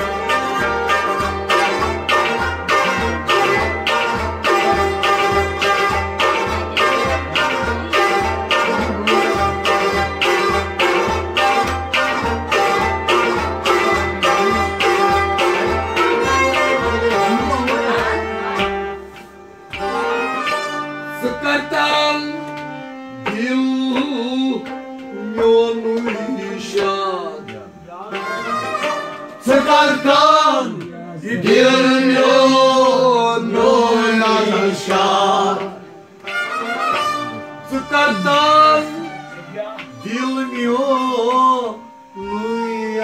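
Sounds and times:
hand drum beating: 0:00.0 - 0:20.8
ornamented folk melody: 0:00.0 - 0:43.0.

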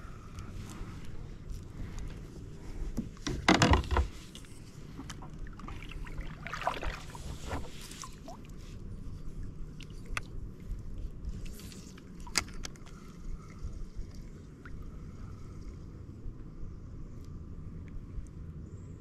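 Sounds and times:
water sloshing around kayak: 0:00.8 - 0:15.6
water splashing: 0:05.0 - 0:08.6.

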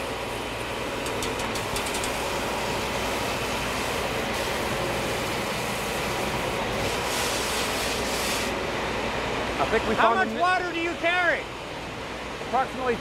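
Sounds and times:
spray gun jetting water: 0:00.0 - 0:08.6.

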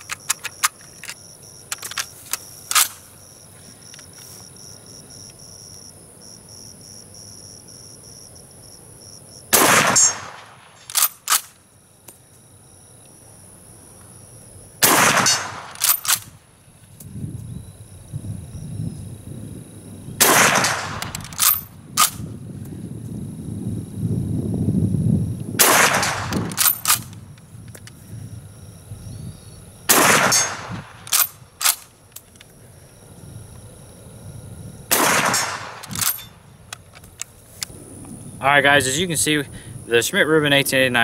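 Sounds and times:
light rifle handling clicks: 0:00.0 - 0:03.0, 0:10.3 - 0:12.2, 0:15.2 - 0:17.1, 0:20.6 - 0:22.8, 0:25.9 - 0:28.0, 0:30.3 - 0:32.6, 0:35.2 - 0:37.7
rifle bolt metallic clicks: 0:00.0 - 0:03.0, 0:09.9 - 0:11.6, 0:15.0 - 0:16.4, 0:20.4 - 0:22.2, 0:25.7 - 0:28.0, 0:30.0 - 0:32.5, 0:35.0 - 0:37.7
rifle shots: 0:09.5 - 0:11.5, 0:14.8 - 0:16.3, 0:20.2 - 0:22.2, 0:25.6 - 0:27.1, 0:29.9 - 0:31.8, 0:34.9 - 0:36.4.

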